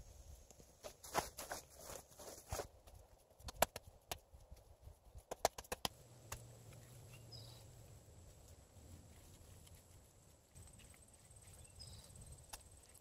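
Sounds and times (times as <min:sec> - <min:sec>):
low steady hum: 0:05.9 - 0:13.0.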